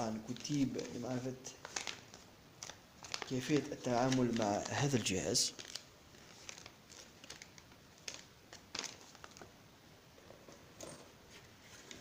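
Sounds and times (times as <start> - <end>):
paper rustling: 0.0 - 9.5.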